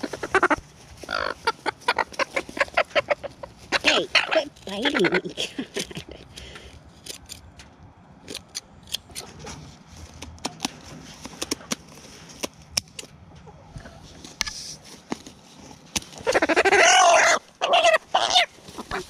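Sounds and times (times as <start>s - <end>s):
chicken squawk: 0.0s - 5.4s, 16.2s - 19.0s.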